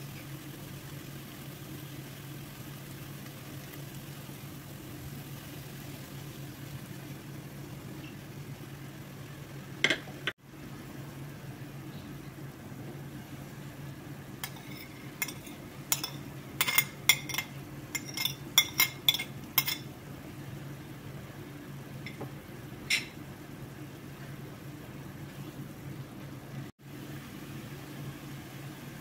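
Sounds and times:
metal spoon clinking on plate: 0:14.4 - 0:19.9, 0:22.9 - 0:23.2.

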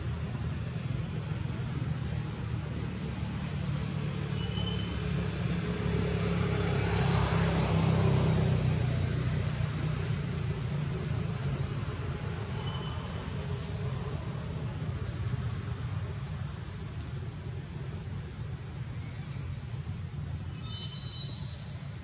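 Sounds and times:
vehicle engine passing by: 0:01.3 - 0:18.1.

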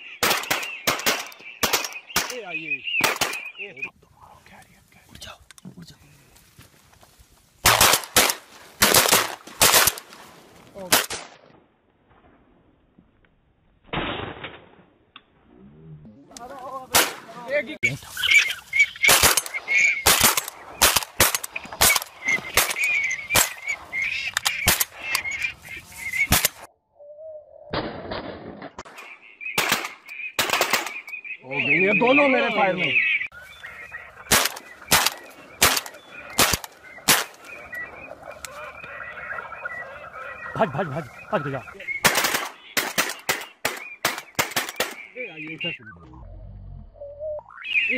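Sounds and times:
waterfowl calling: 0:00.0 - 0:04.0, 0:16.3 - 0:26.7, 0:28.8 - 0:46.3, 0:47.0 - 0:47.9
shotgun blasts: 0:00.2 - 0:03.5, 0:07.6 - 0:10.1, 0:13.9 - 0:14.9, 0:16.9 - 0:17.3, 0:19.0 - 0:23.6, 0:27.7 - 0:31.0, 0:34.3 - 0:37.4, 0:42.0 - 0:45.1.

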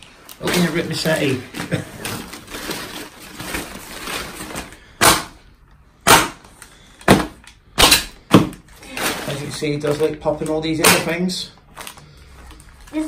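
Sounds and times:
plastic rustling: 0:00.0 - 0:05.0, 0:06.5 - 0:13.0
plastic packing popping: 0:06.1 - 0:13.0.

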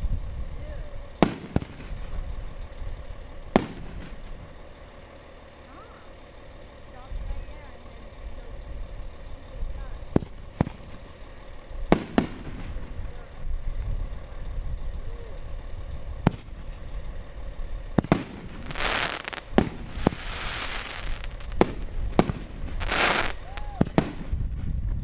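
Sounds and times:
hiss of bursting fireworks: 0:01.0 - 0:02.3, 0:03.5 - 0:04.5, 0:10.1 - 0:13.4, 0:17.9 - 0:24.8
firework bangs: 0:01.1 - 0:05.5, 0:10.0 - 0:14.3, 0:15.5 - 0:24.9.

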